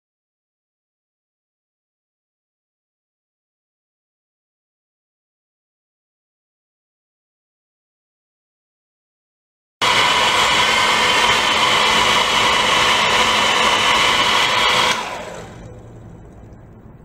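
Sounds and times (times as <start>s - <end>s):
high-pitched whirring motor: 9.8s - 16.6s.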